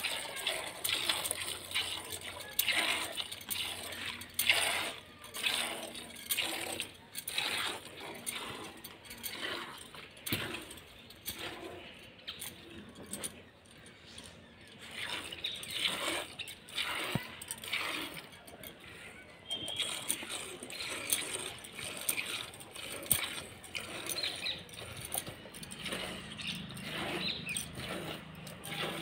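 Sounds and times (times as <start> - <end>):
milk squirting into plastic bucket: 14.8 - 18.3, 19.5 - 26.2.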